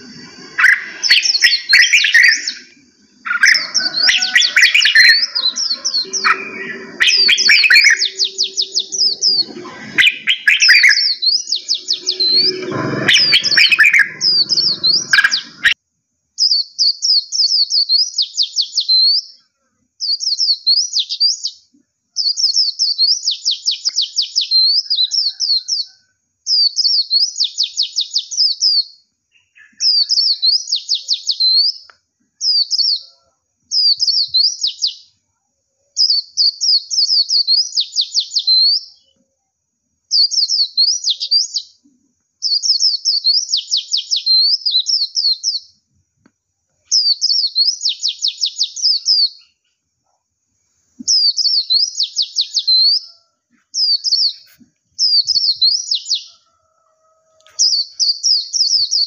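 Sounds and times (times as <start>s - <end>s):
songbird twittering: 0.0s - 15.8s, 51.0s - 53.2s.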